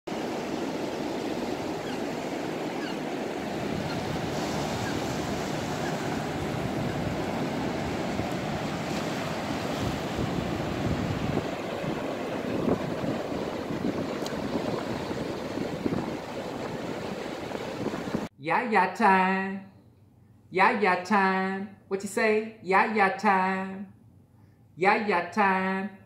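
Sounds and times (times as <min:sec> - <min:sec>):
ocean surf breaking: 0:00.1 - 0:18.3.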